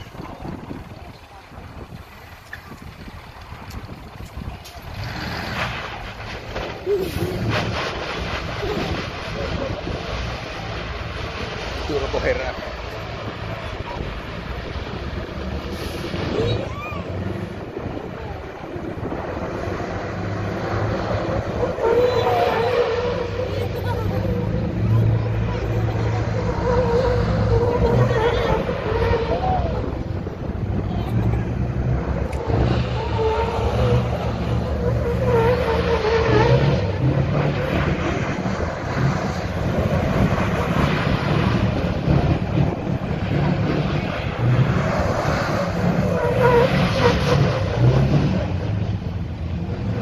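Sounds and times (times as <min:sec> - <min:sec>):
diesel truck engine running hard: 0:00.0 - 0:50.0
tyres squealing in a burnout: 0:15.7 - 0:18.8, 0:19.6 - 0:48.9.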